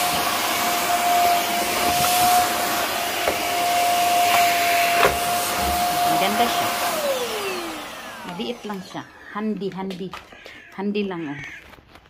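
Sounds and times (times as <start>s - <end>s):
vacuum motor spinning down: 0.0s - 9.4s
vacuum cleaner running: 0.0s - 9.8s.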